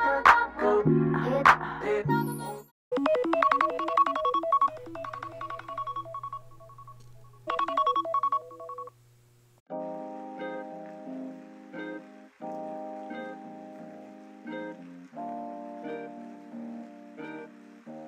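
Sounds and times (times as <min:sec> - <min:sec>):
phone alarm chiming: 0:03.0 - 0:08.9
soft keyboard music: 0:03.0 - 0:08.9, 0:09.7 - 0:18.0.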